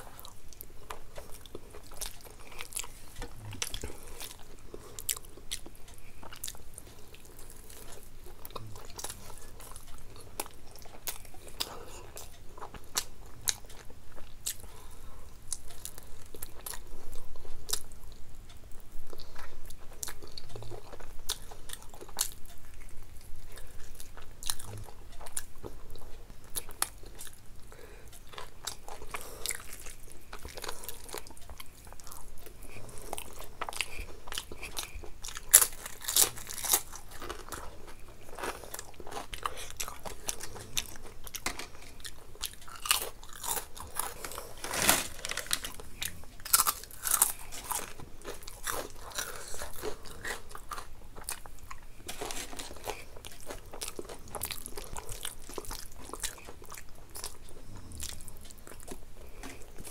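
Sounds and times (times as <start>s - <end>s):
person chewing crunchy food: 0.0s - 59.9s.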